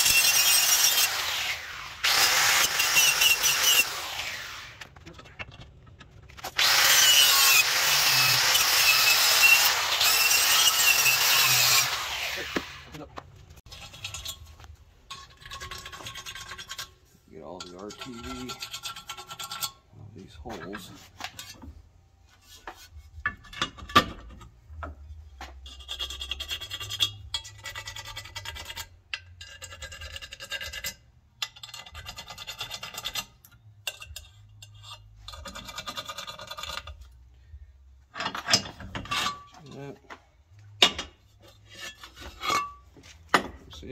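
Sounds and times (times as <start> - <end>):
hand scraping metal flange: 13.6 - 37.2, 40.8 - 43.9.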